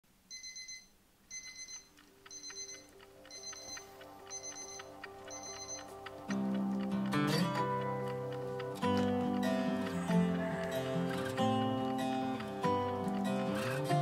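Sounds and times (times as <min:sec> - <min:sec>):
phone alarm beeping: 0:00.3 - 0:06.3
music: 0:01.6 - 0:14.0.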